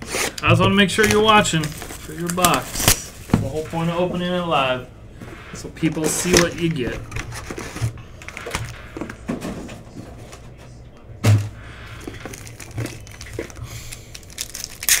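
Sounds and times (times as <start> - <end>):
foil packs rustling: 0.0 - 4.7, 5.4 - 9.2, 11.7 - 15.0.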